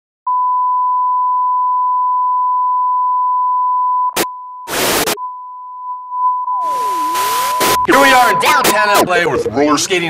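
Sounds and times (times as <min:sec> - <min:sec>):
steady test tone beep: 0:00.3 - 0:08.8
short burst of static: 0:04.7 - 0:05.2, 0:06.6 - 0:07.9.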